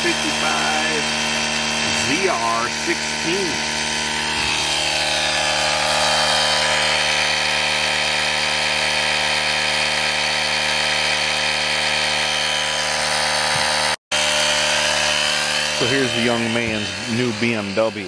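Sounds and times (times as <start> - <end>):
air compressor running: 0.0 - 18.0.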